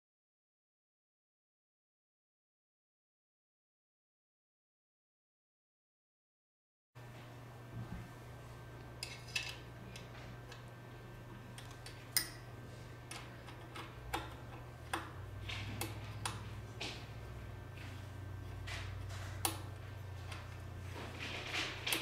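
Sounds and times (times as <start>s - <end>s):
steady low hum: 7.0s - 22.0s.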